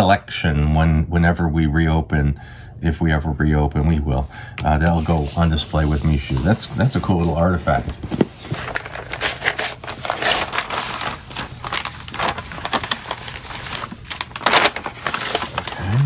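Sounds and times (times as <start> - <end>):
paper and cardboard rustling: 4.8 - 16.0.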